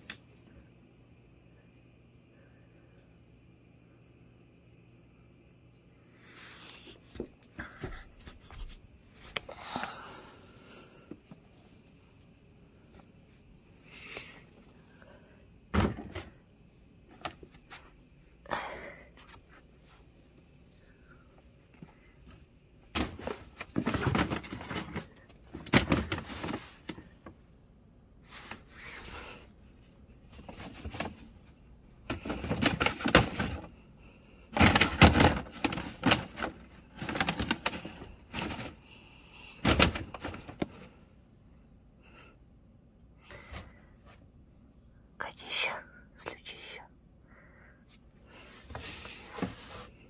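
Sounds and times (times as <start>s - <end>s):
cat rustling shopping bags: 22.1s - 27.4s, 28.2s - 41.0s.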